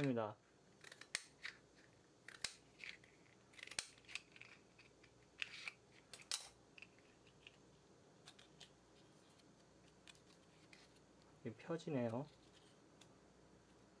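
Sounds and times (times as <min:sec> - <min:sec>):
scissors snipping plastic: 0:00.8 - 0:01.6, 0:02.2 - 0:04.7.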